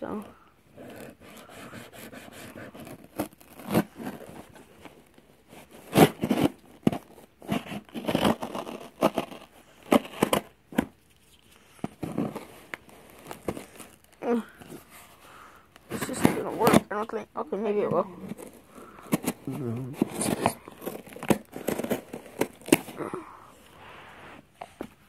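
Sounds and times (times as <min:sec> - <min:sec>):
cardboard rubbing: 0:00.7 - 0:17.1, 0:18.1 - 0:23.0
tape tearing: 0:00.8 - 0:15.0, 0:15.8 - 0:17.0, 0:18.2 - 0:23.1
knife slitting packing tape: 0:05.8 - 0:10.5.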